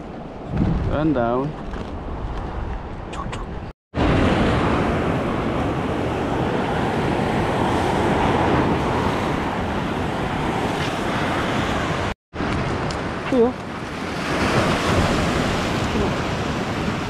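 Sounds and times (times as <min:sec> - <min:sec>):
wind buffeting microphone: 0:00.0 - 0:17.0
surf washing over rocks: 0:04.0 - 0:17.0.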